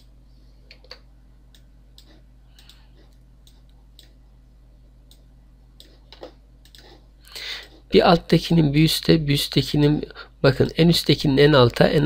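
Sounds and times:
computer mouse clicking: 0:00.0 - 0:04.2, 0:05.1 - 0:07.0
low electrical hum: 0:00.0 - 0:12.0.

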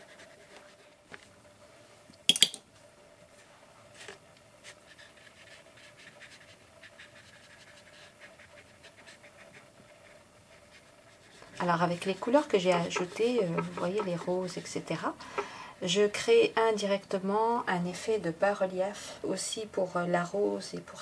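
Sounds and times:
paintbrush on paper: 0:00.0 - 0:01.0, 0:04.6 - 0:15.5
crayon scratching on paper: 0:04.6 - 0:15.5.

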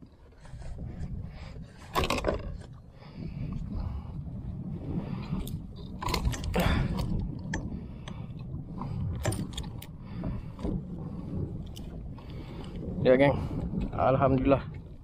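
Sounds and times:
wind and water rumble: 0:00.0 - 0:15.0
fishing gear clicking and rattling: 0:00.5 - 0:03.0, 0:05.1 - 0:13.0.

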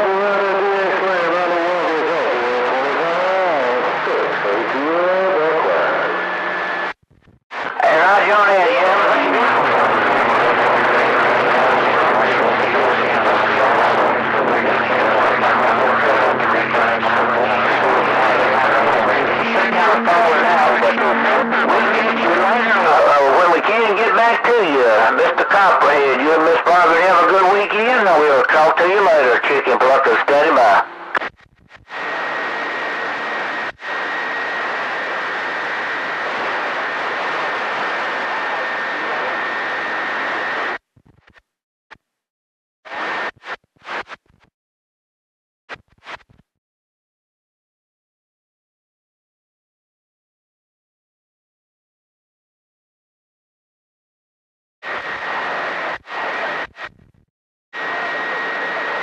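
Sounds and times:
radio static hiss: 0:00.2 - 0:35.4, 0:36.0 - 0:42.0, 0:42.9 - 0:44.5, 0:45.7 - 0:46.4, 0:54.8 - 0:57.2.

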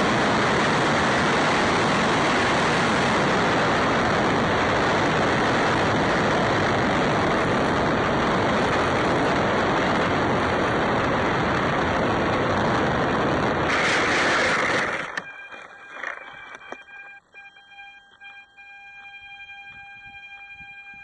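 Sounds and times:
wind over microphone: 0:00.0 - 0:15.2
electric motor and propeller: 0:00.0 - 0:21.0.

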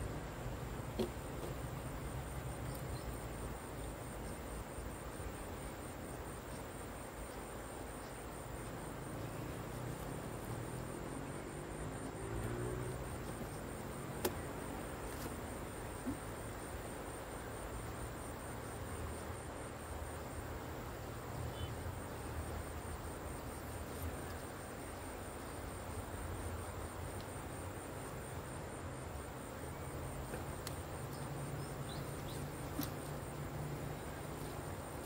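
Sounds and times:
insect trill: 0:00.0 - 0:35.0
low rumble and hiss: 0:00.0 - 0:35.0
faint clicks: 0:30.2 - 0:31.3.

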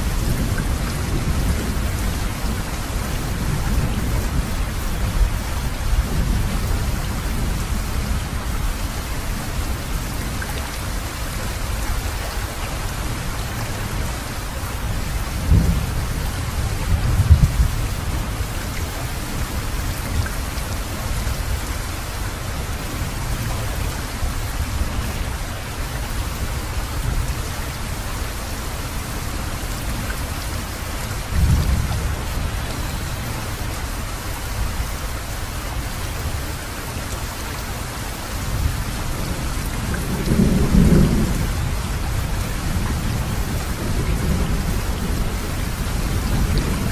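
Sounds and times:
steady rain: 0:00.0 - 0:46.9
thunder rumbling: 0:14.9 - 0:18.6, 0:31.2 - 0:33.6, 0:38.5 - 0:46.9.

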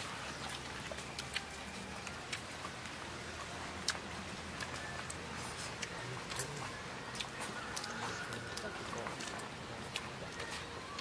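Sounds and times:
chewing smacking clicks: 0:00.4 - 0:03.0, 0:03.8 - 0:05.2.

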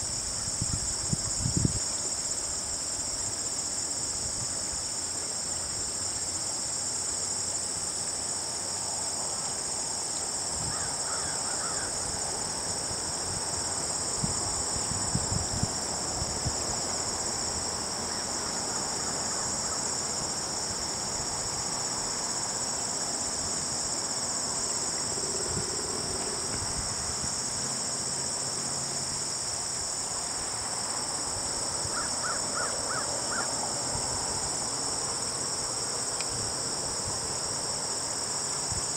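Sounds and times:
insects chirping: 0:00.0 - 0:38.9.

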